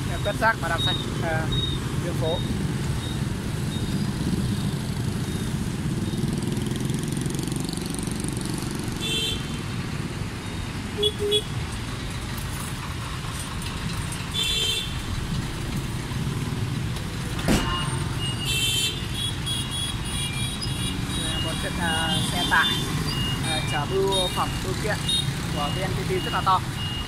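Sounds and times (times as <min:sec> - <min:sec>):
horn beeps: 0:00.0 - 0:04.0, 0:17.6 - 0:27.0
traffic engines and tyres rumble: 0:00.0 - 0:27.0
sharp knock: 0:17.4 - 0:17.9.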